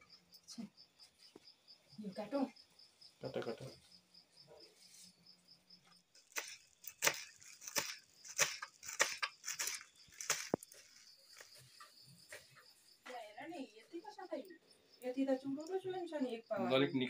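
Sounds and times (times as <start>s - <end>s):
crickets chirping: 0.0s - 17.0s.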